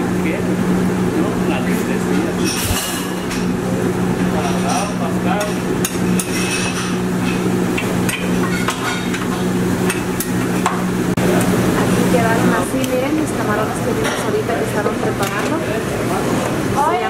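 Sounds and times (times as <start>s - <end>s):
steady mechanical hum: 0.0s - 17.0s
spatula and pans clattering: 2.4s - 3.5s, 4.2s - 10.8s.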